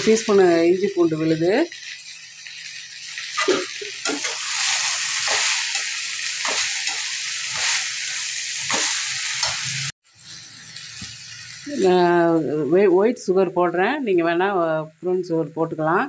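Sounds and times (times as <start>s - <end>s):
vegetables sizzling in oil: 0.0s - 16.0s
metal spoon scraping a pan: 3.3s - 9.9s.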